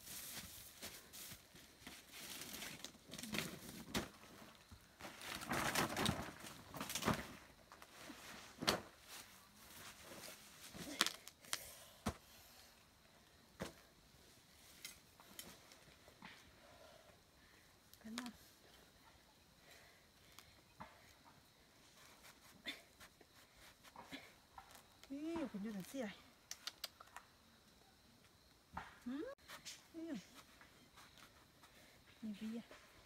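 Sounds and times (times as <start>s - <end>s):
rustling of dry grass and leaves: 0.0s - 11.4s.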